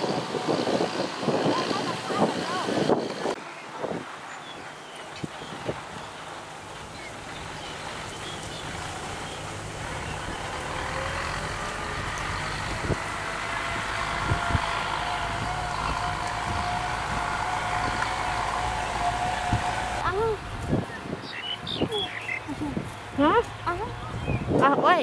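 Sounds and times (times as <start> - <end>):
vehicle engine running: 0.0 - 3.4, 4.1 - 25.0.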